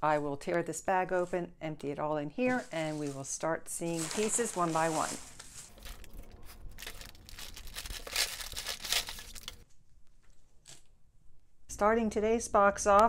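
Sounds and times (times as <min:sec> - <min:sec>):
plastic bag crinkling and tearing: 0:03.9 - 0:09.6.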